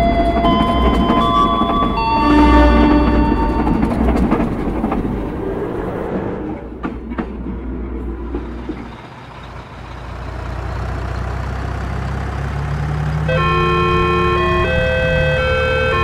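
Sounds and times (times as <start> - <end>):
railroad crossing alarm: 0.0 - 4.6, 13.1 - 16.0
excavator diesel engine running: 0.0 - 16.0.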